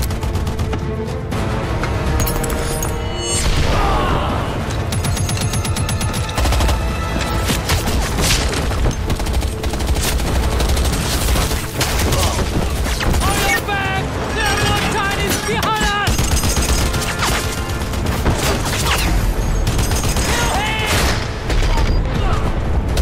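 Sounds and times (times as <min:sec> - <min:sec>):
rapid gunfire: 0:00.0 - 0:00.9, 0:04.9 - 0:13.4, 0:16.0 - 0:21.8
film score music: 0:00.0 - 0:23.0.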